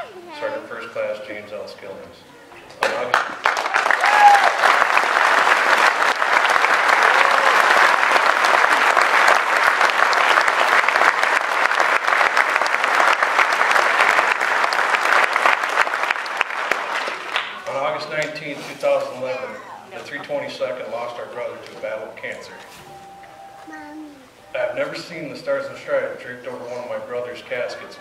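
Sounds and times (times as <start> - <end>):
audience applauding: 2.8 - 18.2.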